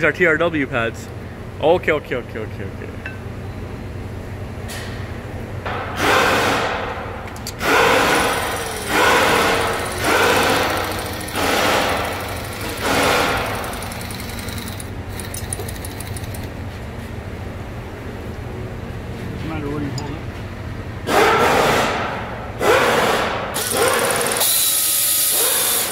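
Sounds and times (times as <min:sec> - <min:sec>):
steady low hum: 0:00.0 - 0:23.6
power tool bursts: 0:07.6 - 0:15.6, 0:23.6 - 0:25.9.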